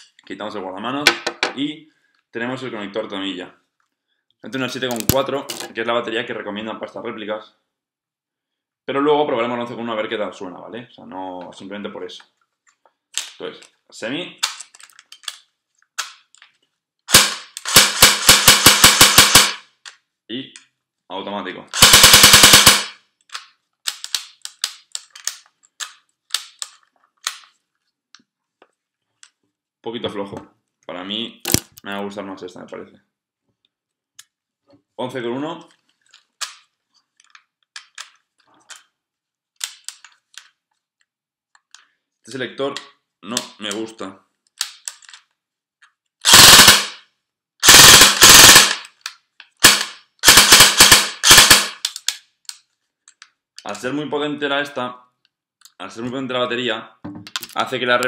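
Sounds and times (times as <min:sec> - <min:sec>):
airsoft rifle shots: 0:17.1 - 0:19.6, 0:21.8 - 0:23.0, 0:46.2 - 0:47.0, 0:47.6 - 0:48.8, 0:49.6 - 0:51.8.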